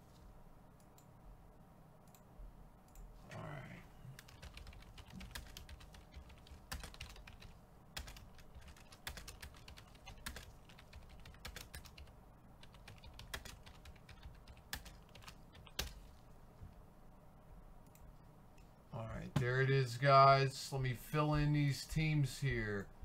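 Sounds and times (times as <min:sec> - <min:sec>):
computer keyboard typing: 0:04.2 - 0:16.0.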